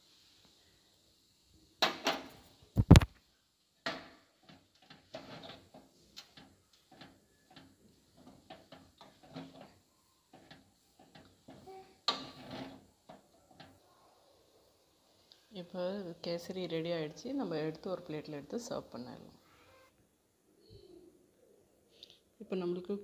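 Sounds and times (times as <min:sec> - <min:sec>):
metal spoon scraping metal pan: 0:04.8 - 0:05.8, 0:06.4 - 0:12.9.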